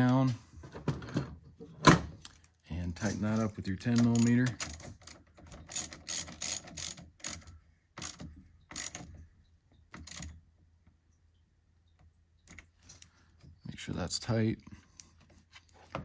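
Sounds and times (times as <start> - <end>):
hand ratchet clicking: 4.0 - 9.1.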